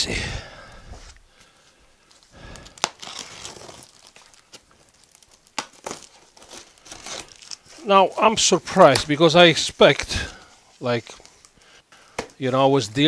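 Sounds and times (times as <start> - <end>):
packing tape tearing: 2.4 - 9.1.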